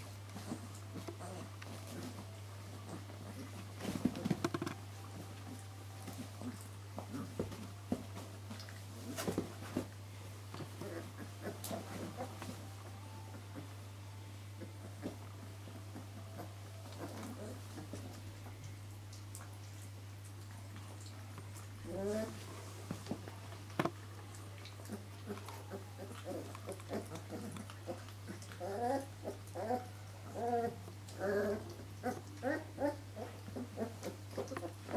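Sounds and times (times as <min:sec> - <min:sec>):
rustling on bedding: 0:00.0 - 0:13.8
puppies licking: 0:15.9 - 0:34.9
puppy grunts: 0:21.8 - 0:22.4, 0:24.8 - 0:34.9.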